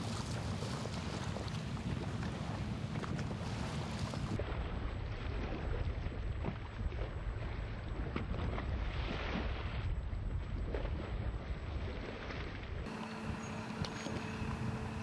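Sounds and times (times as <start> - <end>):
wind buffeting microphone: 0.0 - 15.0
boat motor rumbling: 11.3 - 15.0.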